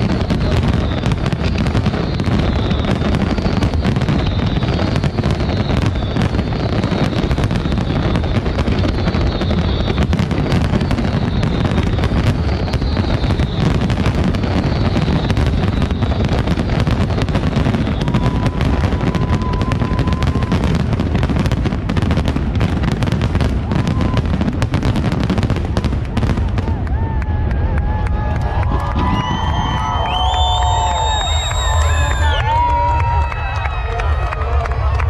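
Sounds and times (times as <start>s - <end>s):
fireworks bursting and crackling: 0.0s - 35.0s
steady whistle tone: 0.2s - 16.7s, 17.5s - 20.4s, 29.0s - 34.0s.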